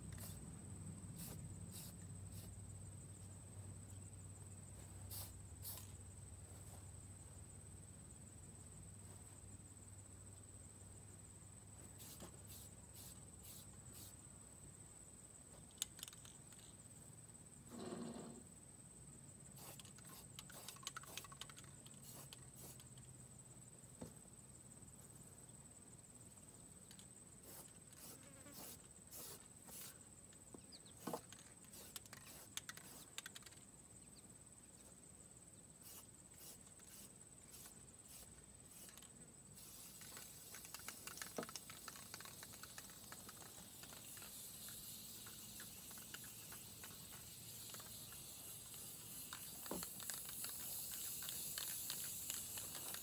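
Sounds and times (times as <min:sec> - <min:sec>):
aerosol spray can hissing: 0:00.2 - 0:00.4, 0:01.2 - 0:02.5, 0:05.1 - 0:05.9, 0:12.0 - 0:14.2, 0:19.6 - 0:21.4, 0:22.0 - 0:22.9, 0:27.4 - 0:30.0, 0:31.0 - 0:33.1, 0:35.8 - 0:39.0, 0:39.6 - 0:53.0
faint clicks: 0:39.9 - 0:53.0.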